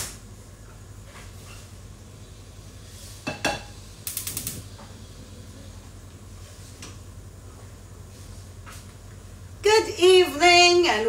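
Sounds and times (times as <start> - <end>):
low steady hum: 0.0 - 11.0
pot knocking on hob: 3.3 - 3.7.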